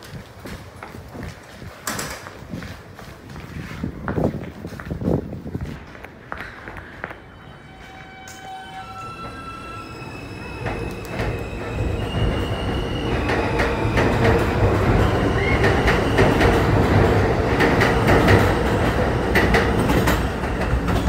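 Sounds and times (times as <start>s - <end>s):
subway train running past: 2.4s - 21.0s
wheels clacking over rail joints: 10.6s - 21.0s.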